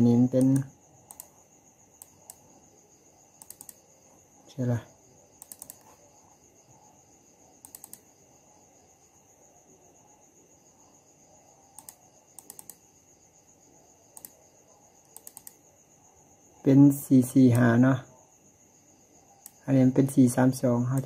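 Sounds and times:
computer mouse clicking: 0:00.3 - 0:01.4, 0:02.0 - 0:02.5, 0:03.3 - 0:03.9, 0:05.4 - 0:06.0, 0:07.6 - 0:08.2, 0:11.7 - 0:12.9, 0:14.1 - 0:14.4, 0:15.0 - 0:15.6, 0:19.4 - 0:19.6.

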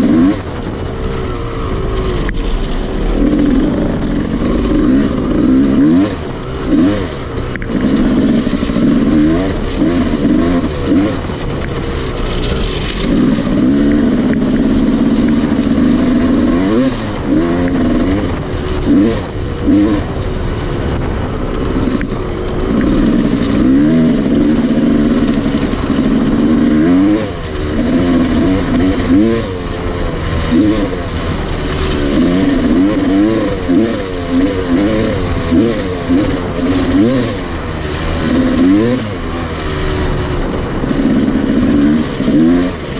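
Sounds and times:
dirt bike engine revving: 0:00.0 - 0:42.9.

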